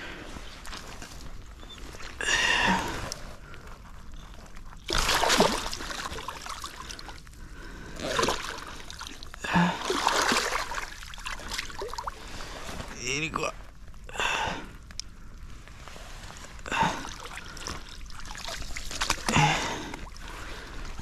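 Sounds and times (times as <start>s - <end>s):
fish flapping and splashing in water: 4.5s - 7.2s, 8.1s - 12.6s, 17.0s - 21.0s.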